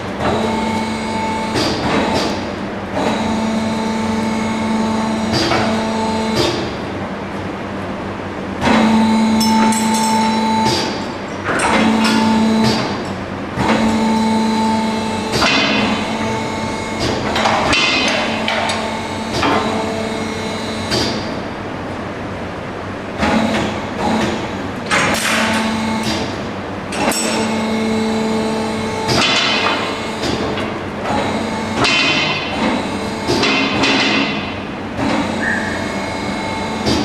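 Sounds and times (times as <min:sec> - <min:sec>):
metal hooks clanking and rattling: 0:09.4 - 0:10.4.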